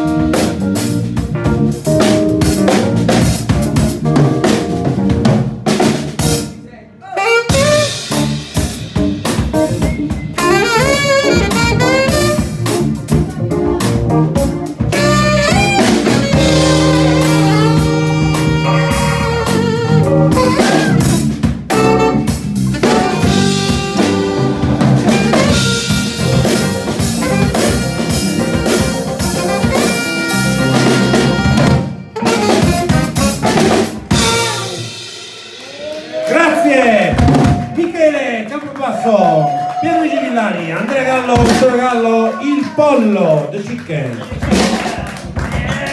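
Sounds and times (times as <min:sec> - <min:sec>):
drum kit: 0:00.0 - 0:39.9, 0:40.7 - 0:42.1, 0:43.4 - 0:45.9
saxophone melody: 0:07.0 - 0:36.0
guitar: 0:07.3 - 0:36.4.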